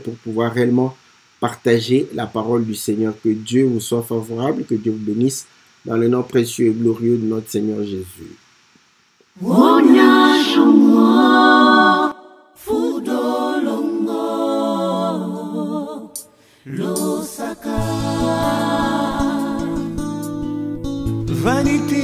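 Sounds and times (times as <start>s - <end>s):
voices singing in harmony: 9.4s - 20.2s.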